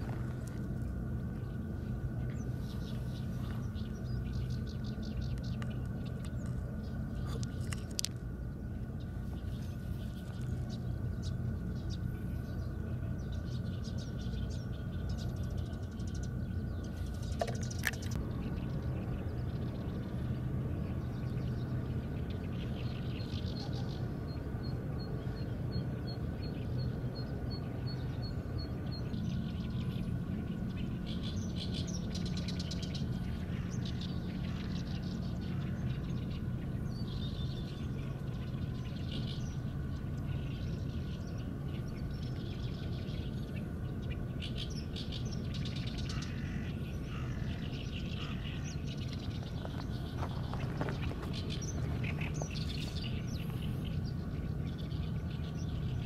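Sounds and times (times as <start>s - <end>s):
steady low hum: 0.0s - 56.0s
gravel crunching underfoot: 48.2s - 54.2s.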